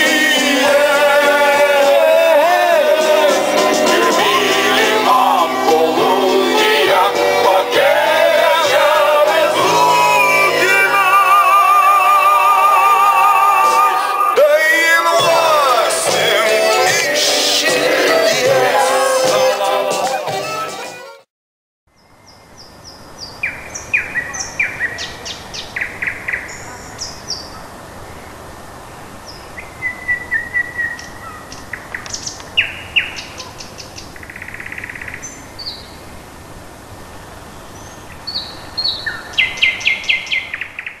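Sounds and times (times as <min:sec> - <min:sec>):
steady outdoor hiss: 0:00.0 - 0:20.6, 0:21.9 - 0:41.0
party music: 0:00.0 - 0:21.3
small birds chirping and trilling: 0:22.0 - 0:28.3, 0:29.3 - 0:36.1, 0:37.5 - 0:41.0.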